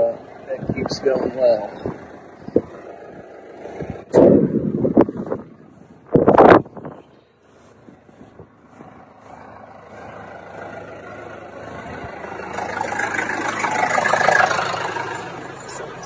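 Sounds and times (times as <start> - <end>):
tractor engine running: 0.0 - 16.0.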